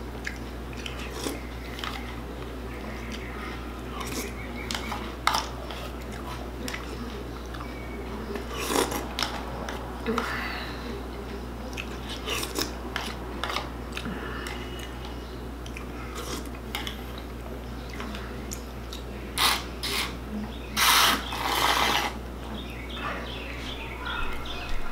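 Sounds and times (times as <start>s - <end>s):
crunchy chewing: 0.0s - 10.4s, 11.3s - 22.4s
plastic spoon scraping bowl: 20.8s - 22.2s.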